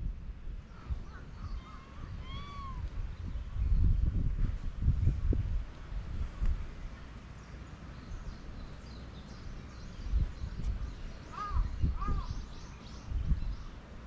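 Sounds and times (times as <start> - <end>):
wind rumble on microphone: 0.0 - 14.0
bird rise-and-fall calls: 0.6 - 3.4, 8.0 - 13.8
small birds chirping: 6.4 - 14.0.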